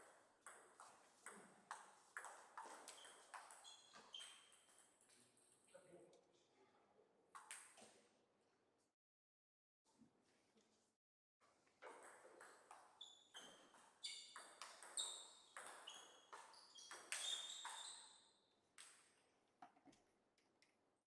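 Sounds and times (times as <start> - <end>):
table tennis ball bouncing: 11.8 - 17.8.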